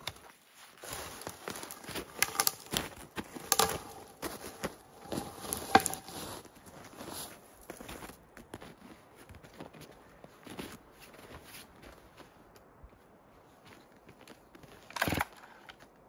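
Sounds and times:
dead wood cracking and snapping: 0.0 - 6.4, 14.8 - 15.8
boots crunching in snow: 0.0 - 12.4.

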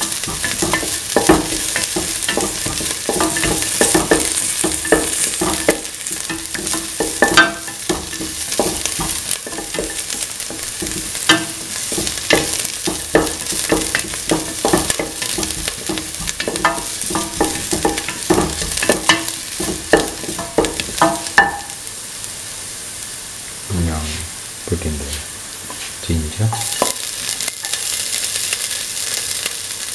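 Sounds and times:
spatula scraping a pan: 0.0 - 21.8
onion sizzling in oil: 0.0 - 29.9.

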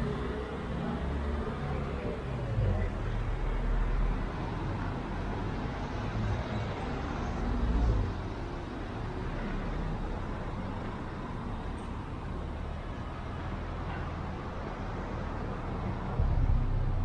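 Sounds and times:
traffic noise: 0.0 - 17.0
low rumble: 16.2 - 17.0.

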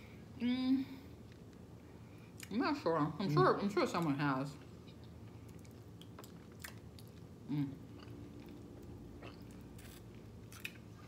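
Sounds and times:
chewing and mouth clicks: 4.9 - 7.3.

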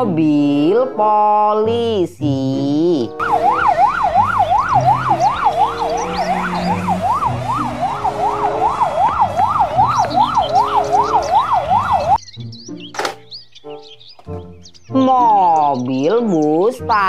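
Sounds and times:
police siren yelping: 3.2 - 12.2.

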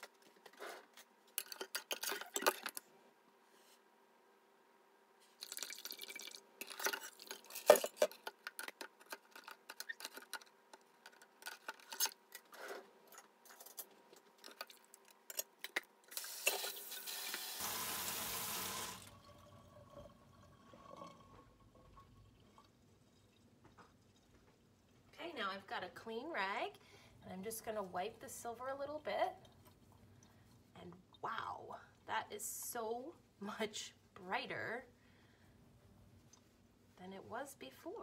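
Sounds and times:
water running hard: 16.4 - 19.1.

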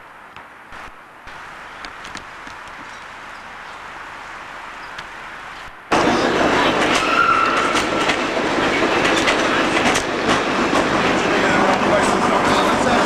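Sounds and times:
low steady hiss: 0.0 - 6.0
cable car rattling on track: 5.9 - 13.0.

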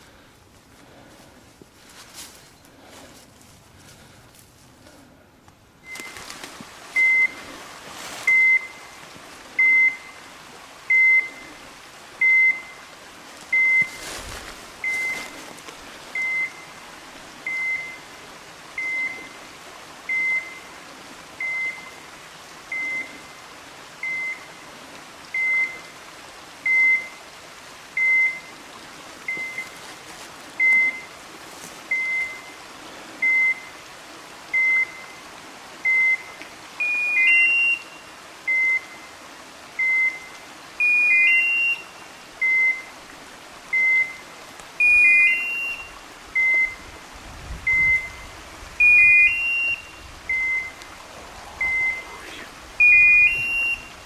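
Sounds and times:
short high beeps: 7.0 - 7.4, 39.8 - 41.8, 44.8 - 46.8, 48.8 - 50.8, 51.6 - 52.2, 52.8 - 53.9.

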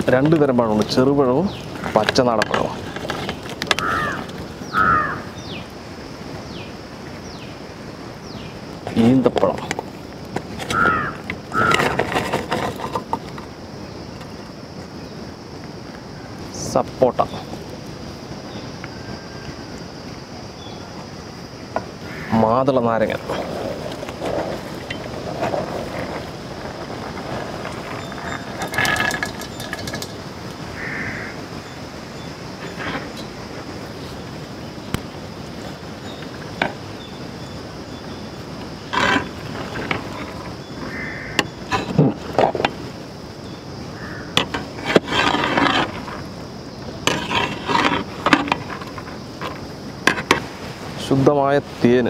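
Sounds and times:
fruit pieces tumbling in a pot: 23.0 - 30.3.

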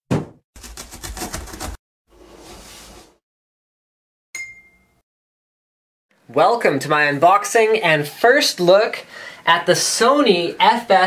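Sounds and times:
box cutter slicing tape: 0.6 - 1.8.

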